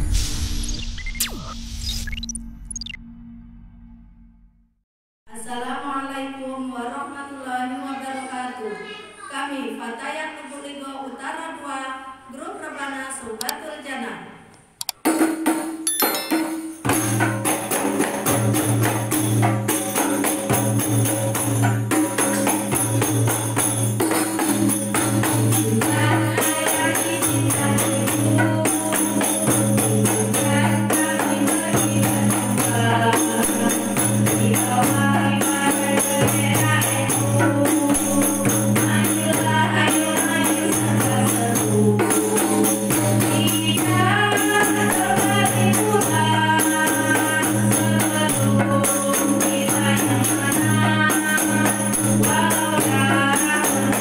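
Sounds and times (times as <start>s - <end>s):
frame drums beating: 15.1s - 26.6s
women singing religious song: 25.4s - 54.0s.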